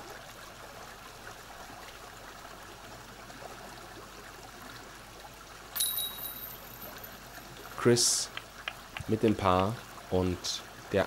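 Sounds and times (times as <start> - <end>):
faint outdoor hiss: 0.0 - 11.0
disc striking metal chains: 5.8 - 7.2.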